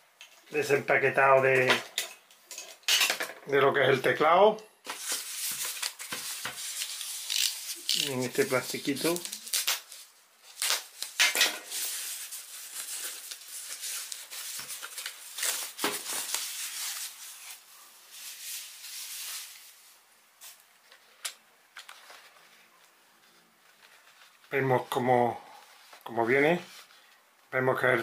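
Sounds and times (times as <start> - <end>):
plastic wrapping rustling: 4.8 - 24.6.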